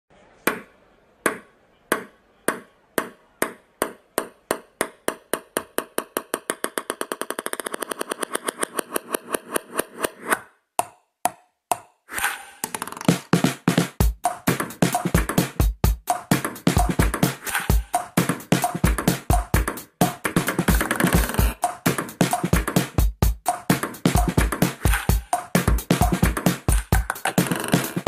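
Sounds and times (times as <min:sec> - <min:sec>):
ping-pong ball bouncing: 0:00.5 - 0:12.0, 0:20.0 - 0:21.8, 0:26.6 - 0:28.0.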